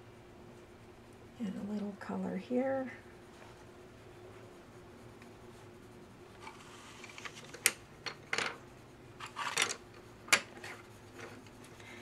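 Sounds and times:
pencil scratching on paper: 3.3s - 7.6s, 8.6s - 12.0s.

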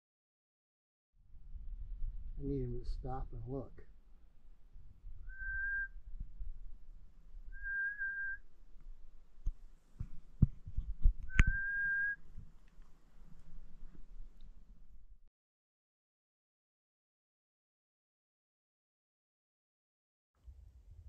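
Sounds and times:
person whistling: 5.3s - 5.9s, 7.6s - 8.4s, 11.3s - 12.2s.

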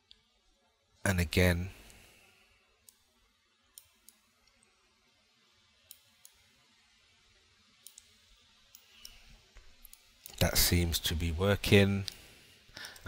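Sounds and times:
faint computer mouse clicks: 7.8s - 10.4s.

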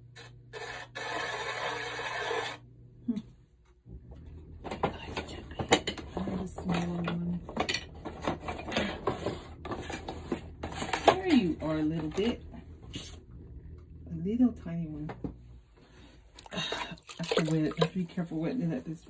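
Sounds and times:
tools clicking and clattering: 5.6s - 10.1s.

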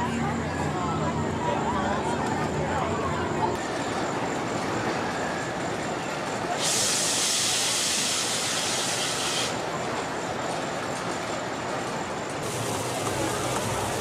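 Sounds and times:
fire effect hiss: 6.5s - 9.6s.

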